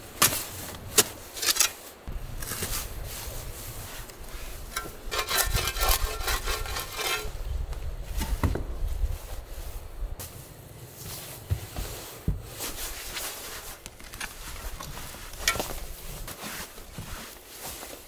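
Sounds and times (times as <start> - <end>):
shovel scraping dirt: 0.0 - 7.4
shovel striking gravelly soil: 0.1 - 7.4, 13.0 - 18.0.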